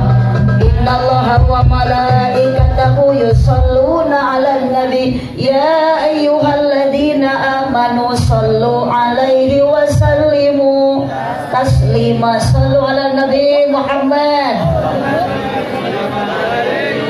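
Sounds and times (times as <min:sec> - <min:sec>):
instrumental backing with bass: 0:00.0 - 0:04.0
woman singing: 0:00.0 - 0:14.7.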